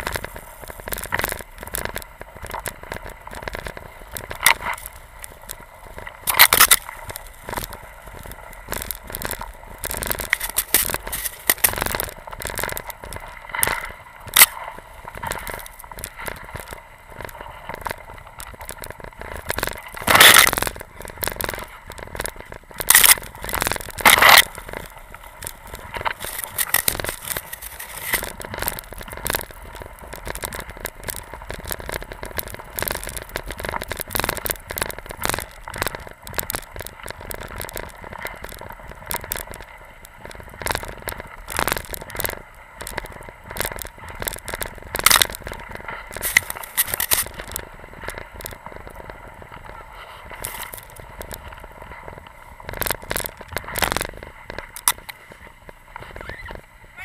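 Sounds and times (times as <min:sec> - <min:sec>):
skis scraping through snow: 0:09.7 - 0:12.4.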